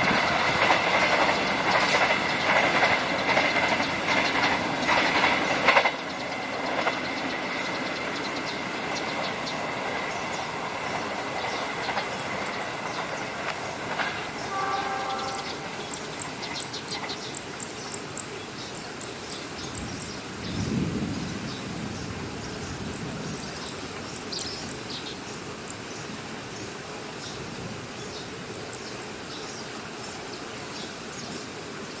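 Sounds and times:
wheels clicking on rails: 0.0s - 19.9s
train rumbling on track: 0.0s - 32.0s
train horn: 14.0s - 16.0s.

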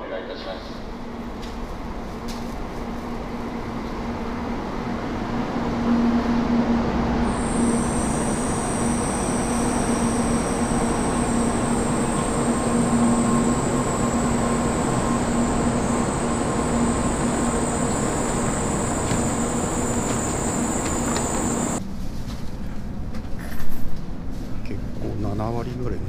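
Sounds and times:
train rumbling: 0.0s - 26.0s
high whine: 5.9s - 21.8s.

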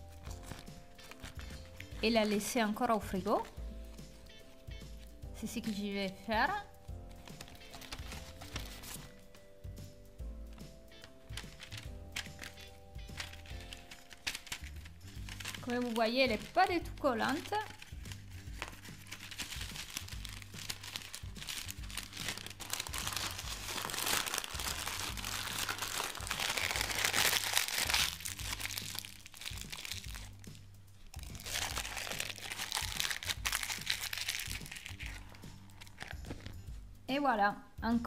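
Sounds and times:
baking paper crinkling: 0.0s - 2.6s, 7.2s - 9.2s, 11.0s - 30.4s, 31.1s - 36.6s.

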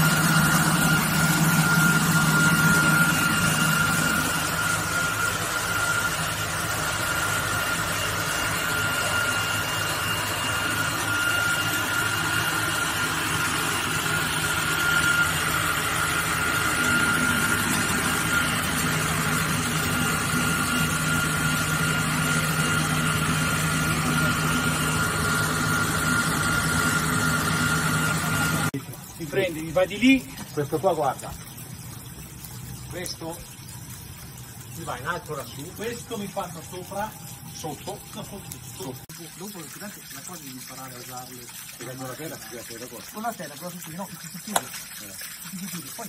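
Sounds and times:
wire saw cutting marble: 0.0s - 28.8s.

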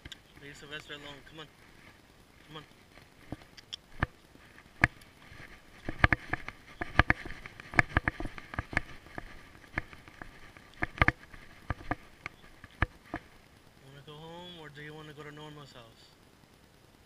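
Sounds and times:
sharp clicks and taps on concrete: 5.8s - 13.3s.

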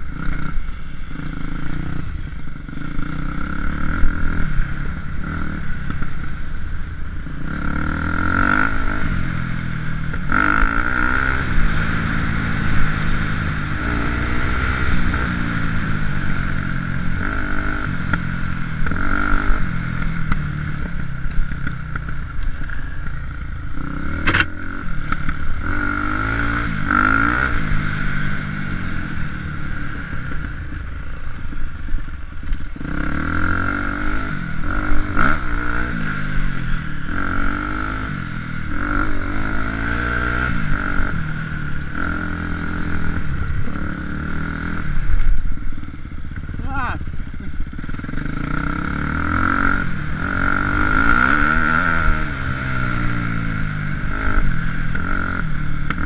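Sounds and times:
motorcycle engine revving: 0.0s - 56.0s
motorcycle rattle and clatter: 0.0s - 56.0s.

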